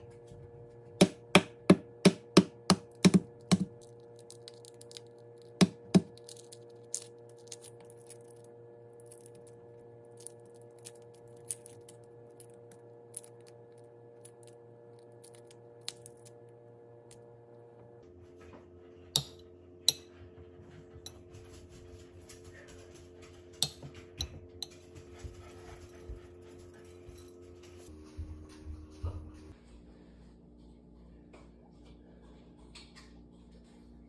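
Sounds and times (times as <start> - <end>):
egg tapped on cutting board: 1.0 - 3.7
eggshell crackling as peeled: 3.4 - 8.4, 14.2 - 16.4.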